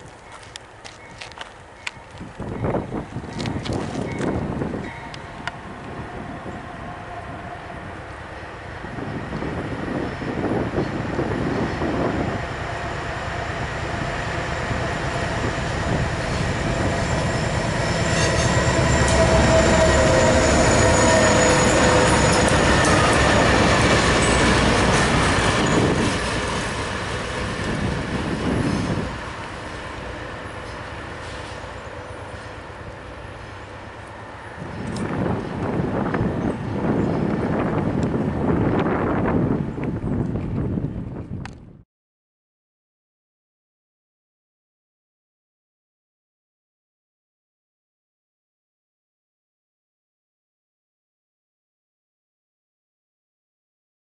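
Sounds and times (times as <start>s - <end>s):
diesel locomotive engine: 0.0s - 41.7s
train wheels clattering on rails: 15.1s - 29.7s.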